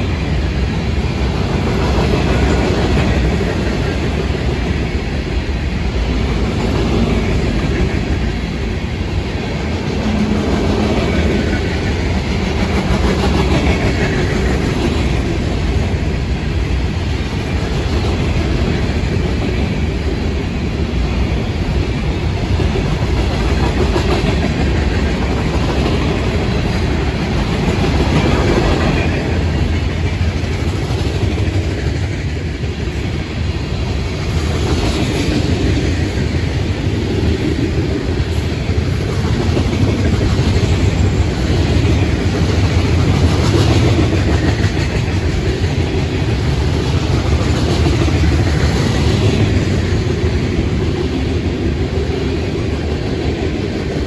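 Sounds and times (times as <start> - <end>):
freight train cars rumbling past: 0.0 - 54.0.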